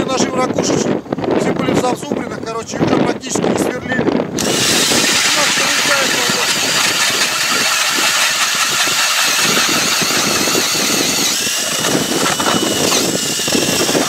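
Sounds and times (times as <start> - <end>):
auger blades grinding ice: 4.4 - 14.0
drill motor whine: 4.4 - 14.0.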